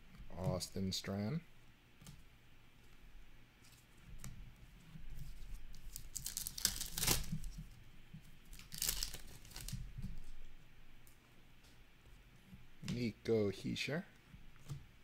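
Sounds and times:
foil wrapper ripping: 5.7 - 7.5, 8.5 - 9.8
foil wrapper crinkling: 5.7 - 7.6, 8.5 - 9.8.

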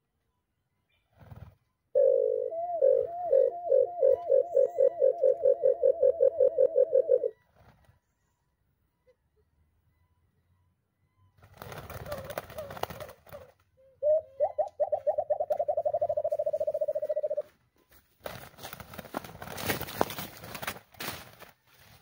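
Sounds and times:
doves flapping wings: 1.1 - 1.6, 7.5 - 8.0, 11.4 - 13.7, 18.2 - 22.0
low dove coos: 2.0 - 7.4, 11.9 - 17.5
rustling: 16.4 - 22.0.

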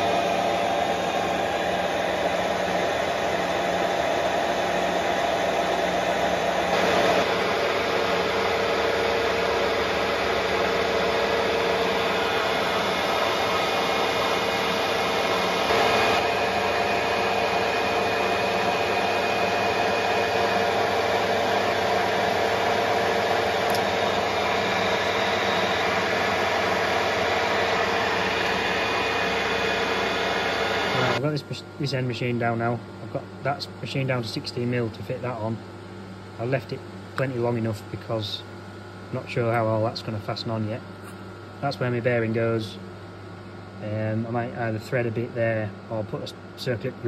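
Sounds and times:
cutting tool hissing: 0.0 - 31.2
lathe motor humming: 0.0 - 31.2.

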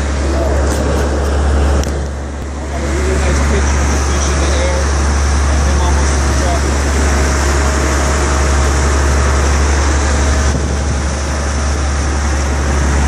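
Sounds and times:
boat engine running: 0.0 - 13.0
water rushing from wake: 0.0 - 13.0.

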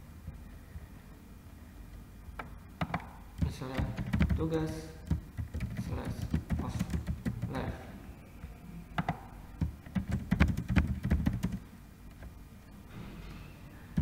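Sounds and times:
computer keyboard typing: 2.8 - 7.7, 9.0 - 11.6.

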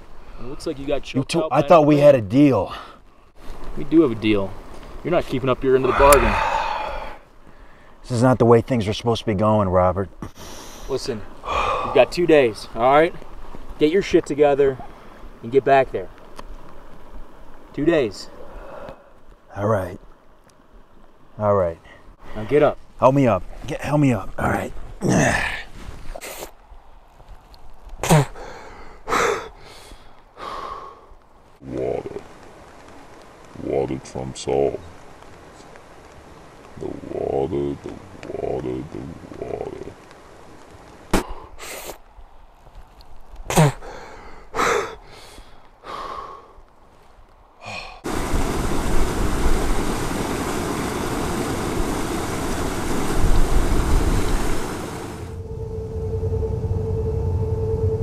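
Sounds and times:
loud rush of water: 5.7 - 7.2, 48.0 - 55.4
man grunting: 5.8 - 6.8, 25.0 - 25.6
breathy vocal sounds: 5.8 - 7.9, 10.4 - 12.1, 18.3 - 19.2, 47.6 - 48.1
man gasping: 5.9 - 7.8, 11.4 - 12.0, 47.6 - 48.1.

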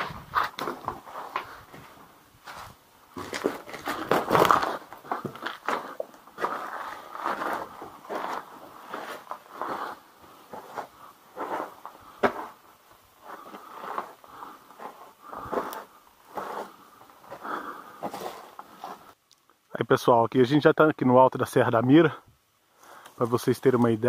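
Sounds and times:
shoes scraping on grit: 0.0 - 12.6, 13.3 - 19.2
footsteps on rocky cave floor: 0.0 - 19.2.

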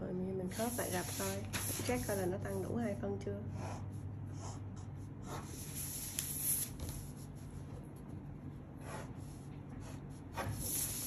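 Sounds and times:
low room hum: 0.0 - 11.0
paper rustling on table: 0.6 - 2.2
pen touching paper: 0.6 - 2.2.

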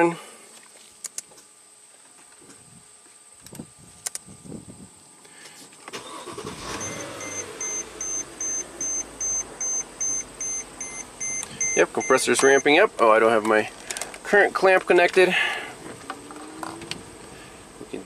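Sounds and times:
car engine starting and idling: 5.9 - 14.2, 15.2 - 18.0
warning chime beeping: 6.7 - 12.8.

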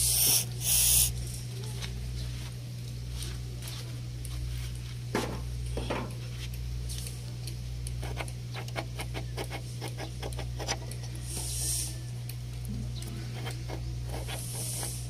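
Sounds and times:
spray can hiss: 0.0 - 1.2, 11.3 - 12.0, 14.2 - 15.0
steady low hum: 0.0 - 15.0.

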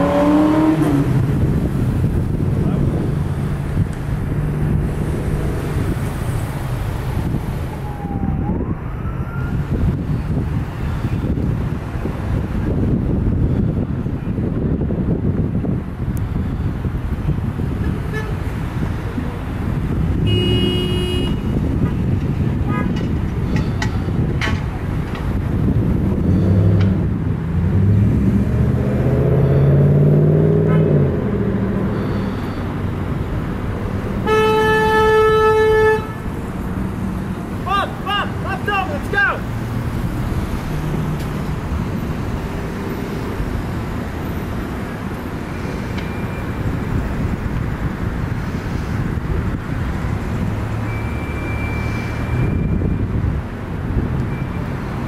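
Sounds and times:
diesel engine revving: 0.0 - 7.4, 25.7 - 34.3
wind noise on microphone: 0.0 - 38.4, 39.5 - 55.0
diesel engine low rumble: 0.0 - 55.0
distant siren: 7.7 - 9.6, 50.8 - 53.1.

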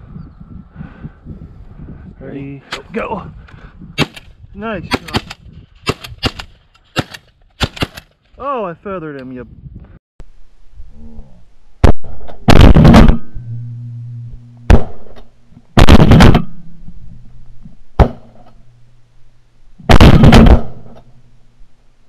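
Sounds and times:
shotgun blasts: 4.9 - 8.1, 11.8 - 13.3, 14.7 - 15.2, 15.8 - 16.6, 18.0 - 18.4, 19.8 - 21.0.

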